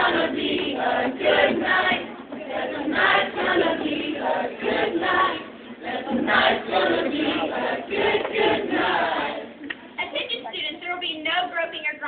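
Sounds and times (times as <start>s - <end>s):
choir singing: 0.0s - 9.6s.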